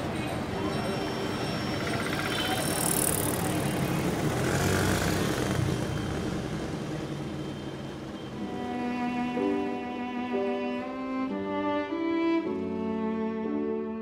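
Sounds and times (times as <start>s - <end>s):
motorcycle and rickshaw engines passing: 0.0s - 9.2s
road noise: 0.0s - 14.0s.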